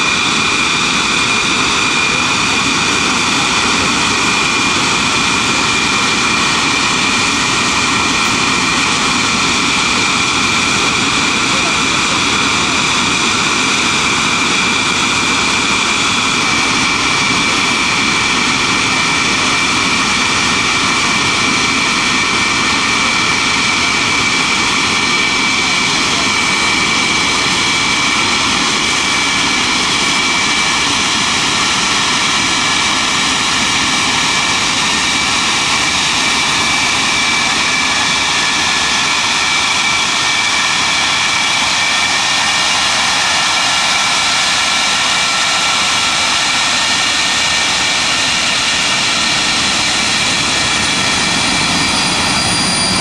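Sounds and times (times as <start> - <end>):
jet engines whining and roaring: 0.0 - 53.0.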